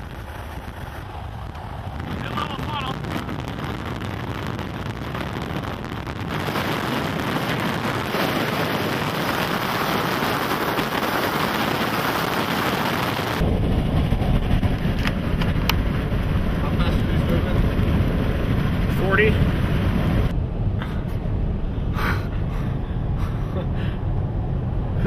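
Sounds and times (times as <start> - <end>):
car driving rumble: 0.0 - 25.0
wind: 0.0 - 25.0
rain: 5.2 - 20.3.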